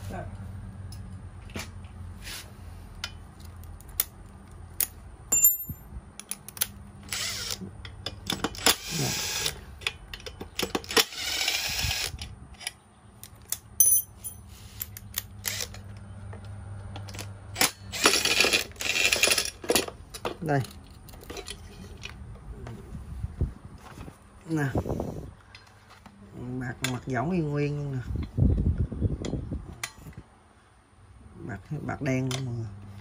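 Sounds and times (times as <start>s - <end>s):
high metallic pings: 5.3s - 5.8s
metal tools clinking: 5.3s - 6.4s, 13.8s - 15.8s, 17.1s - 22.1s.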